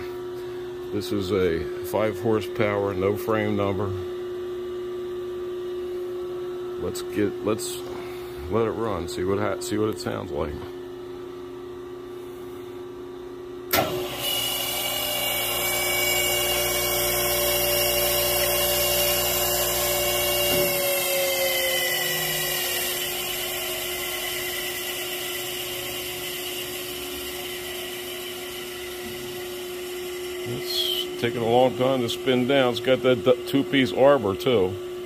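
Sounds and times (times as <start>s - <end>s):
phase converter hum: 0.0s - 35.0s
saw motor whine: 13.7s - 34.7s.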